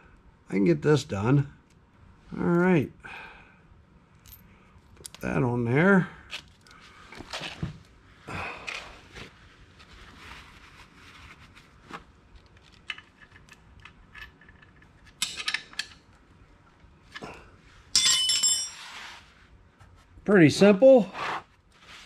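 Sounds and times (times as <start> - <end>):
metallic clicks of hand tools: 12.9 - 16.0.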